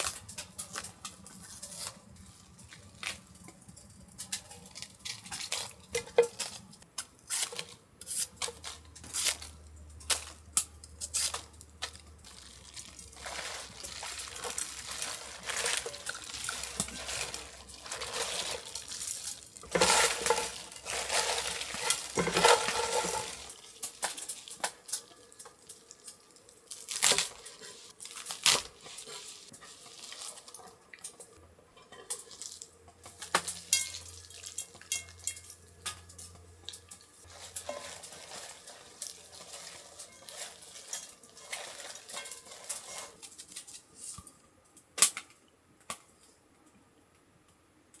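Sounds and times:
stirring or mixing: 0:12.2 - 0:26.1
utensils clinking on dishes: 0:12.4 - 0:26.0, 0:28.8 - 0:43.7.

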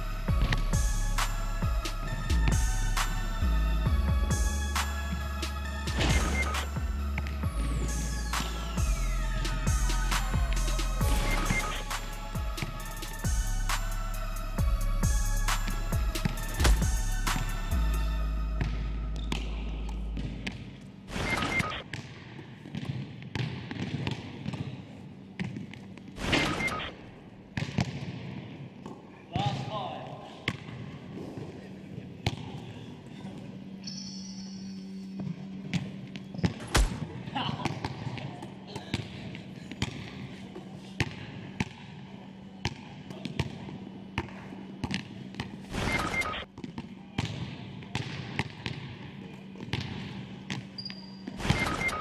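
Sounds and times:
steady low hum: 0:00.0 - 0:21.1
basketballs bouncing on wooden floor: 0:21.9 - 0:24.8.

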